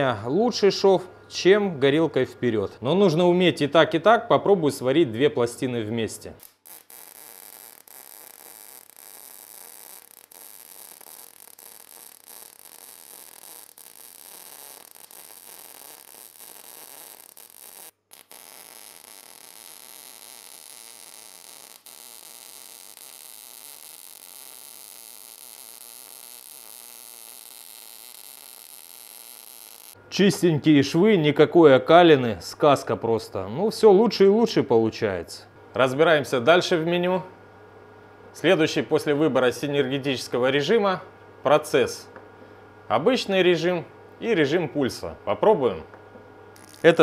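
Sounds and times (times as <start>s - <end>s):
welding arc crackling: 6.4s - 30.0s, 46.5s - 47.0s.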